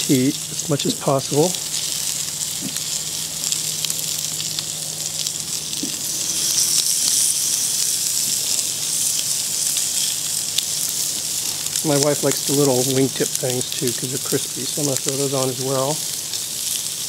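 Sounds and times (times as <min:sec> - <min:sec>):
meat sizzling on grill: 0:00.0 - 0:17.0.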